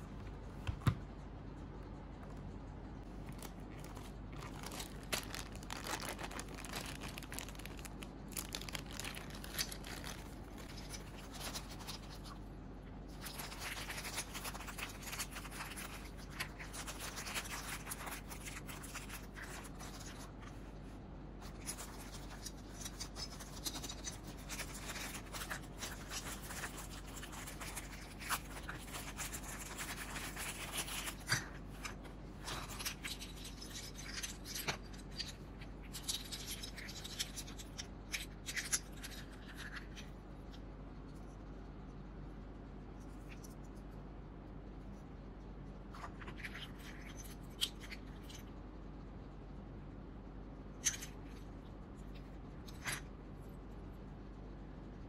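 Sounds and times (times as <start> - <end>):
plastic bag crinkling: 3.0 - 12.4, 21.4 - 37.8.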